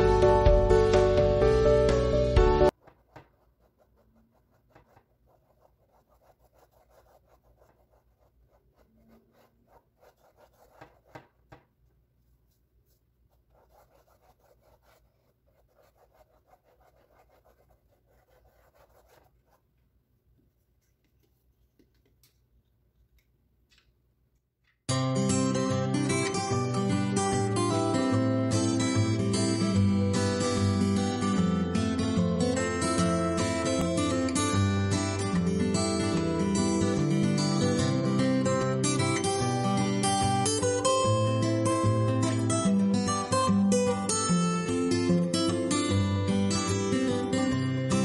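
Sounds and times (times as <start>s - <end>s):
paintbrush scratching on canvas: 2.7s - 11.6s, 12.2s - 19.8s.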